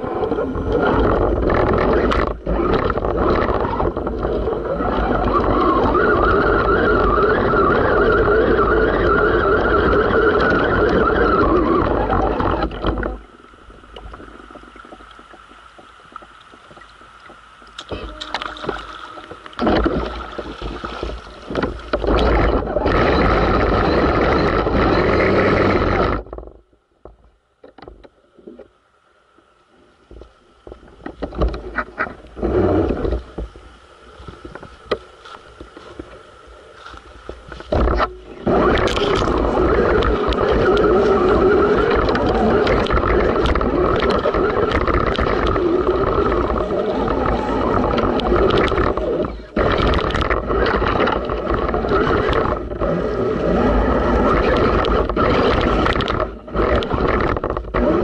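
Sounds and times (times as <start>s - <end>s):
water splashing: 0.0s - 26.5s, 30.0s - 58.0s
faint clicks: 0.2s - 28.7s.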